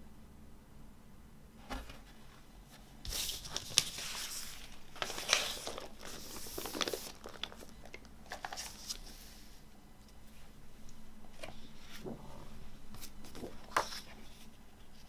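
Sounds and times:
paper sleeve rustling: 3.1s - 9.5s.

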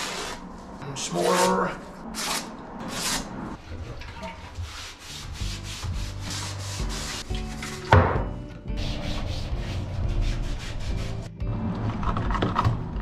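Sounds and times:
hand sanding plywood: 4.5s - 7.9s, 8.8s - 11.3s.

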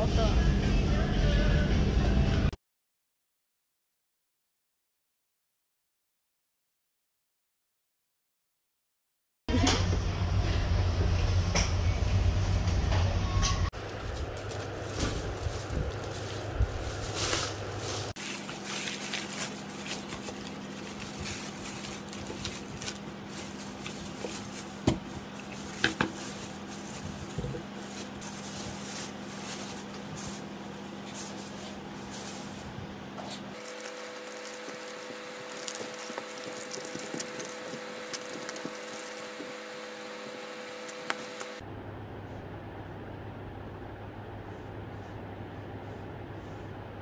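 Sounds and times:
steady low hum: 9.5s - 47.0s
plastic bags and bottles handled: 13.8s - 41.6s.

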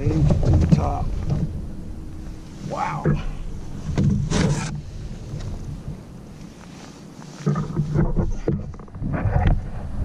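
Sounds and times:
knocks and clunks: 0.0s - 1.6s, 3.0s - 5.5s, 7.5s - 9.6s
wind rumble on microphone: 0.0s - 10.0s
handling noise on plastic kayak: 0.1s - 1.6s, 3.7s - 9.8s.

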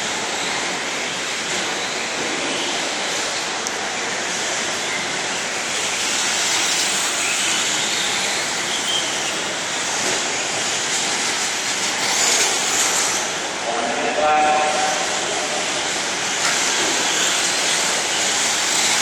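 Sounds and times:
rc trucks whining: 0.0s - 13.9s, 14.6s - 19.0s
rushing indoor din: 0.0s - 19.0s.

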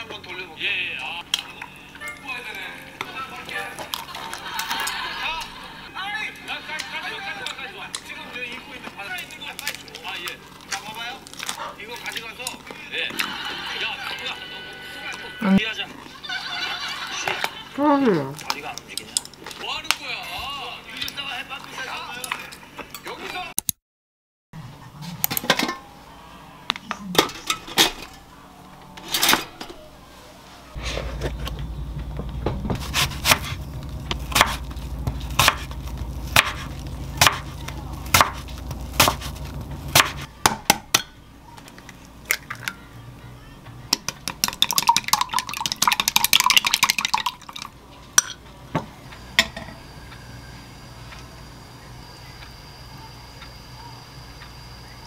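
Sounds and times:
steady low hum: 24.6s - 43.9s, 47.1s - 55.0s
knife slicing apple on board: 32.6s - 33.6s, 34.3s - 34.7s, 36.3s - 38.4s, 39.0s - 40.7s.

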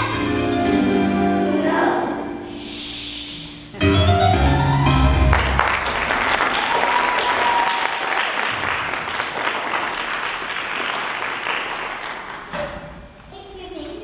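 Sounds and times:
audience applauding: 5.0s - 12.5s.

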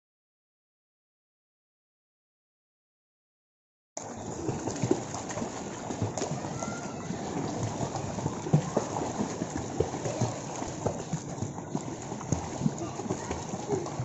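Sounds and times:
pool water splashing: 4.0s - 14.0s.

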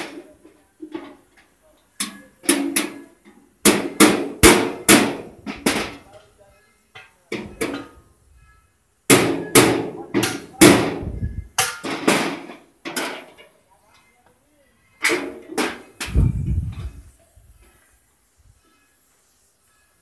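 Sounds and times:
hammer on metal box: 2.0s - 6.1s, 9.1s - 11.0s, 11.6s - 13.3s.

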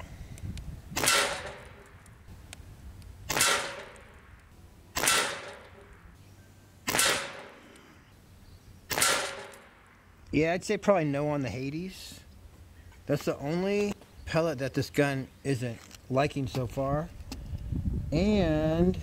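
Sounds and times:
air rifle shots cracking: 0.9s - 2.0s, 3.3s - 6.0s, 6.8s - 7.8s, 8.9s - 9.8s.

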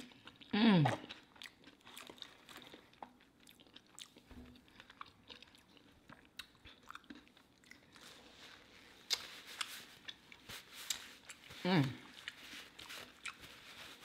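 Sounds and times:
chewing crunchy food: 0.0s - 14.0s.

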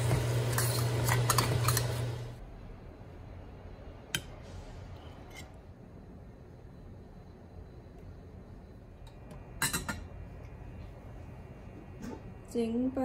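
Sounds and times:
food sizzling in wok: 0.0s - 2.4s
steady low hum: 0.0s - 13.0s.

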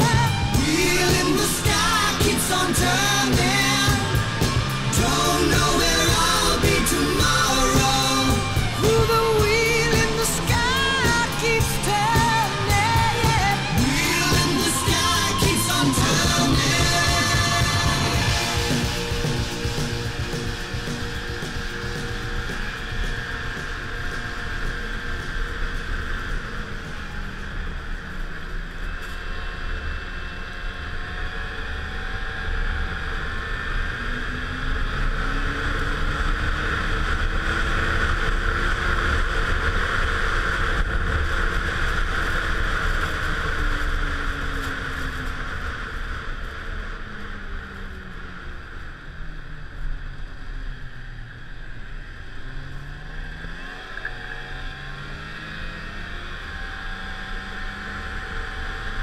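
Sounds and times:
snowmobile engine and track: 0.0s - 59.0s
steady rushing noise: 0.0s - 59.0s.

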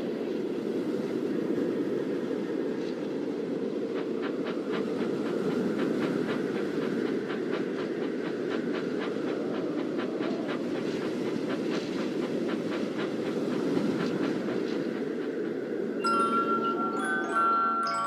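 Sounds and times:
rail clicks: 0.8s - 18.0s.

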